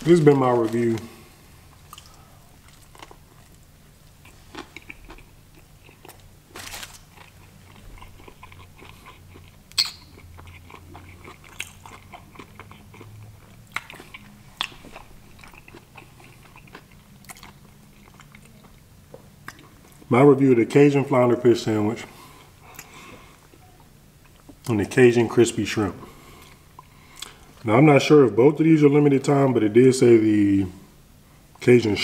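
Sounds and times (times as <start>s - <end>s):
person chewing crunchy sandwich: 0.1s - 20.1s.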